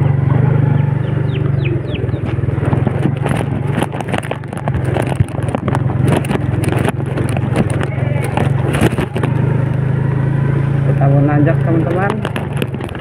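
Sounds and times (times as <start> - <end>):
motorcycle engine running: 0.0 - 13.0
stones knocking and rattling: 1.7 - 9.9, 11.6 - 13.0.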